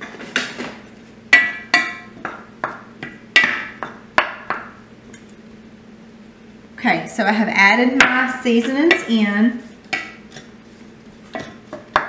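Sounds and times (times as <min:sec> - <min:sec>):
wooden spoon knocking on skillet: 0:01.3 - 0:04.7, 0:11.4 - 0:12.0.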